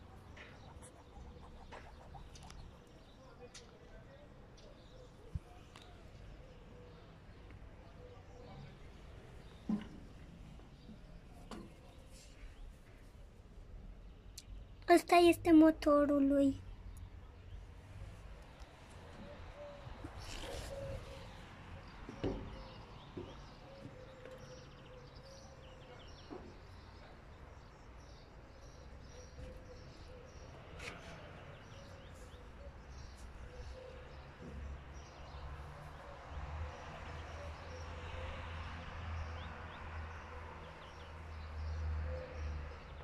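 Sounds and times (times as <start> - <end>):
soft knocks: 22.0 - 24.0.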